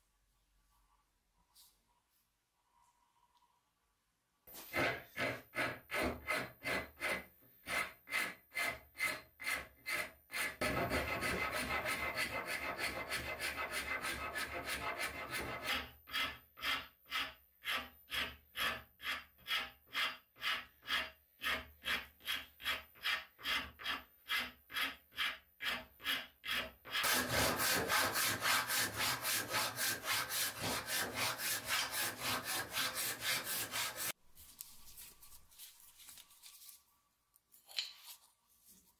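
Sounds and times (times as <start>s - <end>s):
hand saw cutting wood: 4.6s - 34.2s
rasp scraping wood: 4.7s - 34.2s.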